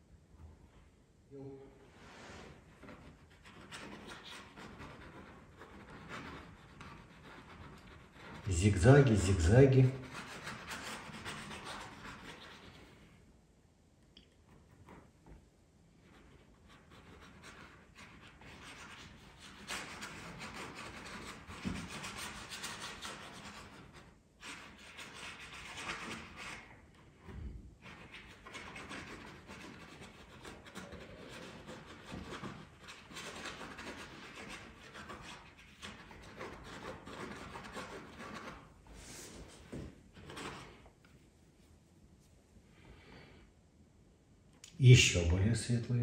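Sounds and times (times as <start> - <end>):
brush scrubbing paint on canvas: 2.0 - 13.1, 16.0 - 26.9, 27.8 - 42.4.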